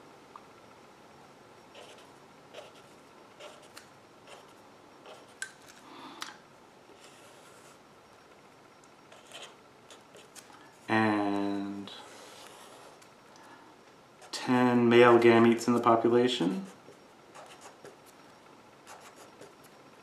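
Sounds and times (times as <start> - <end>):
marker scratching on paper: 1.7 - 5.4, 9.1 - 10.4, 12.0 - 13.0, 17.3 - 18.0, 18.9 - 19.6.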